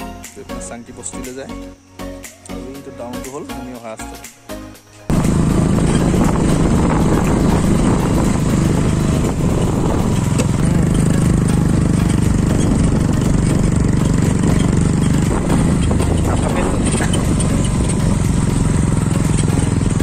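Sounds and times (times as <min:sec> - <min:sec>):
motorcycle engine running: 0:05.1 - 0:20.0.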